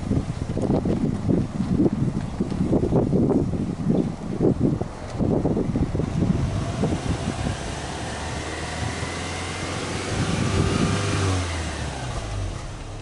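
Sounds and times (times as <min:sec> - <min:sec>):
car engine idling: 0:03.6 - 0:13.0.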